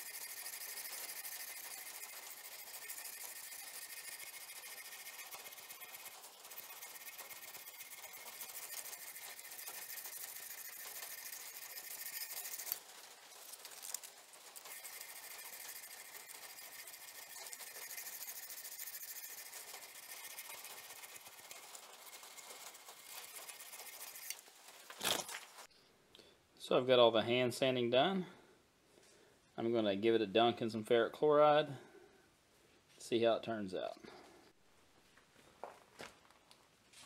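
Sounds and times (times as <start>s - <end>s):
sandpaper rasping on steel blade: 0.0s - 24.4s.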